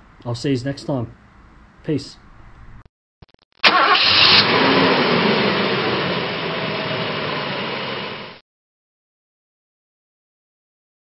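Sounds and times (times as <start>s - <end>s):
car engine idling: 3.7s - 8.4s.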